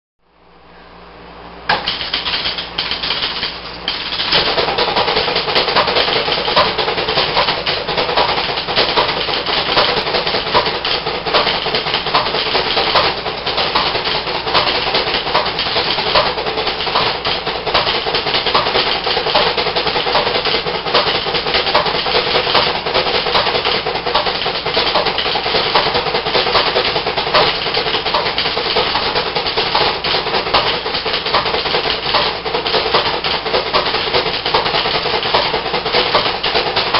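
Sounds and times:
faint steady hum: 0.2s - 24.6s
pinball relays clattering: 1.7s - 36.9s.

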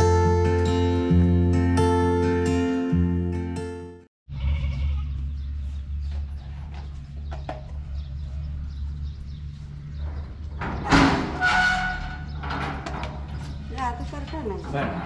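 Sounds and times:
high metal creak: 10.0s - 15.0s
metal door latch clank: 10.6s - 13.4s.

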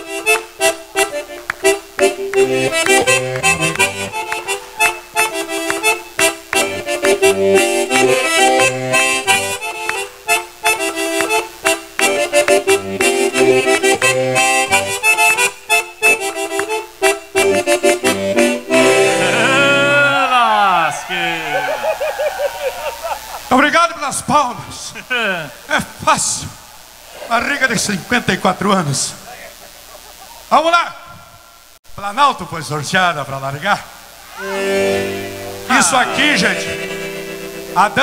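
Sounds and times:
accordion dance tune: 0.0s - 23.7s, 34.3s - 38.0s
handclaps: 1.2s - 7.7s, 9.8s - 10.1s, 11.1s - 14.8s, 16.5s - 16.8s.

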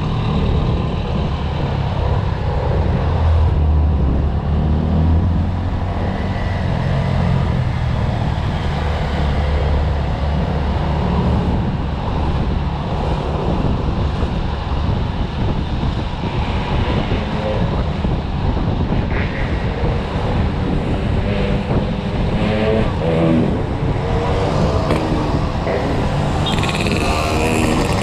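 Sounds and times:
wind rushing over microphone: 0.0s - 28.0s
scooter engine running: 26.4s - 28.0s.

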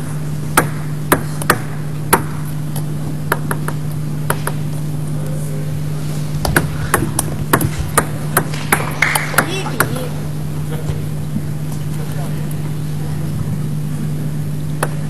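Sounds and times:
low electrical hum: 0.0s - 15.0s
table tennis ball clicks: 0.6s - 4.6s, 14.8s - 15.0s.

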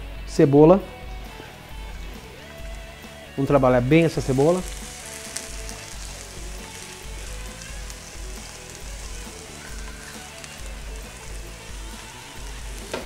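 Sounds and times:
onion sizzling in frying pan: 1.4s - 13.0s.

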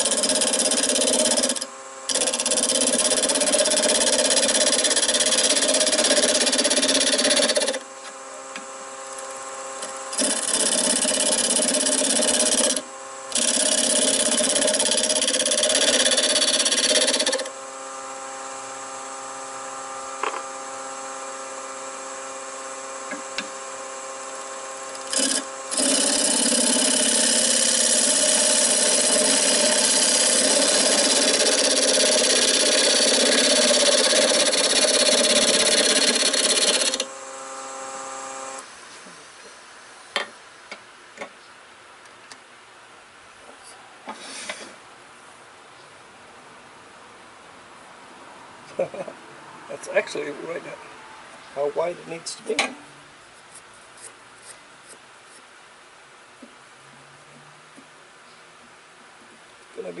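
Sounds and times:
wood lathe motor hum: 0.0s - 38.8s
wood scraping hiss: 43.5s - 44.8s.

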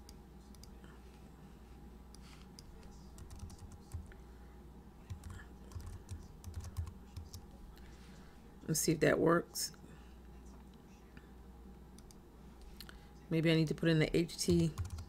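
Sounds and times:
faint keyboard typing: 0.0s - 1.0s, 2.1s - 4.2s, 5.0s - 7.9s, 12.0s - 12.8s, 13.7s - 15.0s.

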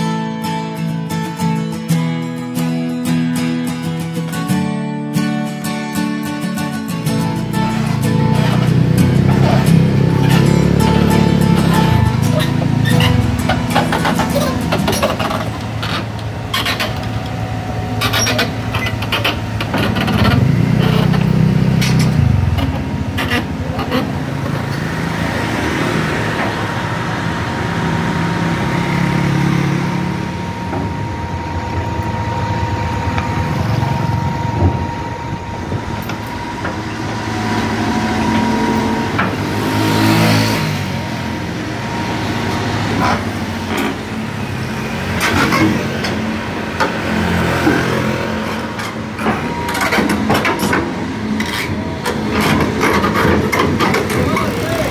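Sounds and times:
diesel engine revving: 6.6s - 54.9s
steel tracks clanking: 6.7s - 54.9s
thin steady whine: 26.6s - 39.4s.

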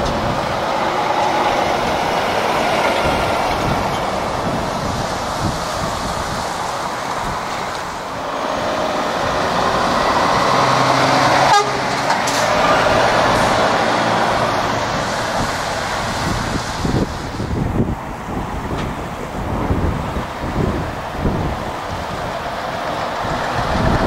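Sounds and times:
lorry driving past: 0.0s - 17.3s.

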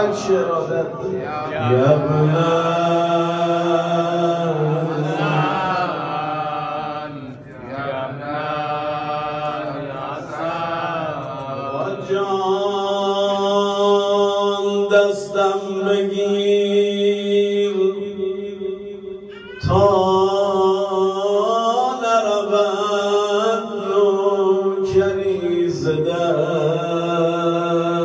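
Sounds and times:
man chanting: 0.0s - 18.7s, 19.4s - 28.0s.

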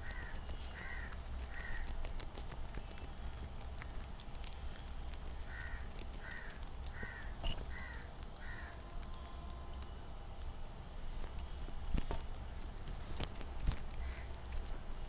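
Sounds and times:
crow cawing: 0.0s - 1.9s, 5.5s - 8.8s
guinea pigs chewing greens: 0.0s - 15.0s.

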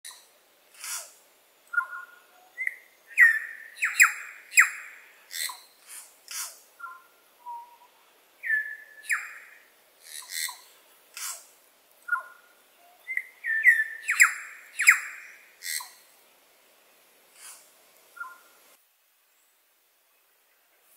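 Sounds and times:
bird singing ringing notes: 1.7s - 5.7s, 6.8s - 9.6s, 12.1s - 16.0s.

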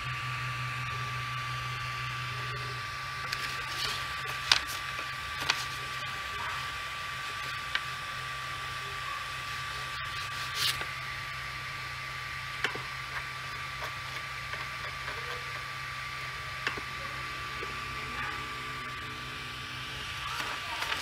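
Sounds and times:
printer humming with high whine: 0.0s - 21.0s
paper rustling: 3.3s - 5.9s, 10.1s - 10.9s.

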